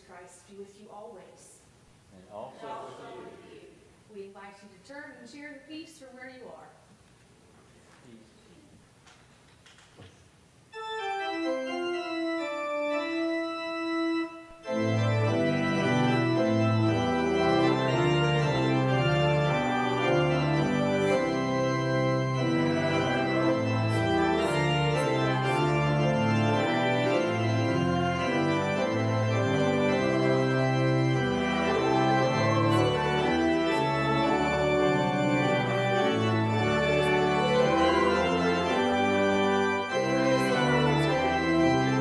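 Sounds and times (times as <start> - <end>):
church organ playing: 10.7 - 42.0.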